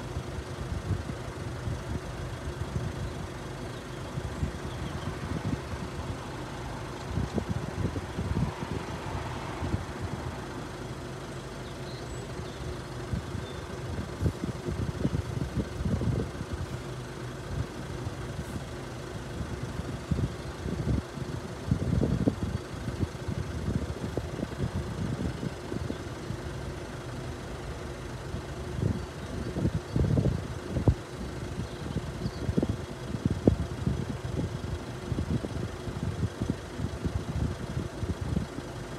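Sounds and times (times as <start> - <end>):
wind buffeting microphone: 4.2 - 6.2, 7.0 - 10.4, 12.4 - 16.8, 28.7 - 34.6.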